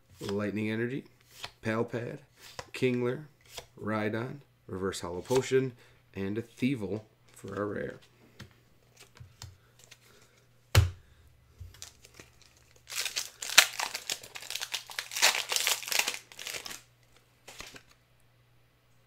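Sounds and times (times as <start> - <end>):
foil wrapper crinkling and tearing: 11.8 - 16.9.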